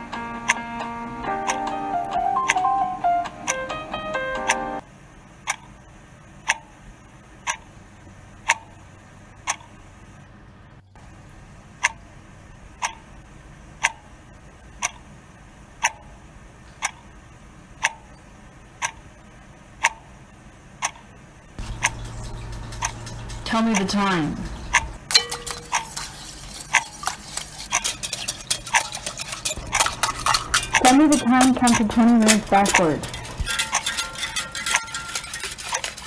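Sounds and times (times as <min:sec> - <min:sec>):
clock ticking: 0:01.3 - 0:02.7, 0:07.4 - 0:07.6, 0:11.8 - 0:12.0, 0:12.8 - 0:13.1, 0:13.8 - 0:14.1, 0:14.8 - 0:15.1, 0:15.8 - 0:16.2, 0:16.8 - 0:17.1, 0:17.8 - 0:18.2, 0:18.8 - 0:19.0, 0:19.8 - 0:20.1, 0:20.8 - 0:36.0.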